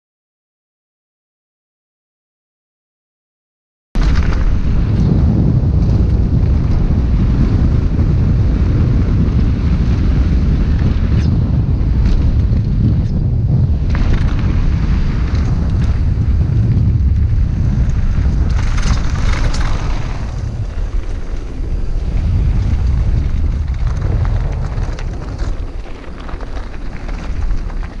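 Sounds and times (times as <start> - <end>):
wind rushing over microphone: 4.0 - 28.0
tyres crunching over gravel: 17.6 - 28.0.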